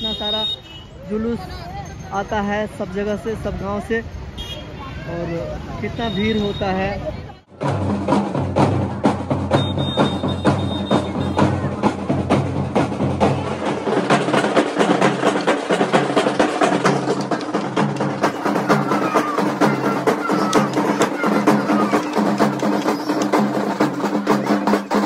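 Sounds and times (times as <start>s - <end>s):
bass drums and side drums: 7.5s - 25.0s.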